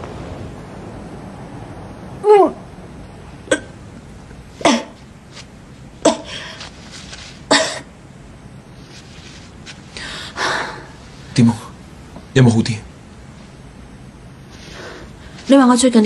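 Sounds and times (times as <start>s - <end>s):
woman retching: 3.5s - 3.8s, 4.6s - 5.0s, 7.5s - 7.9s.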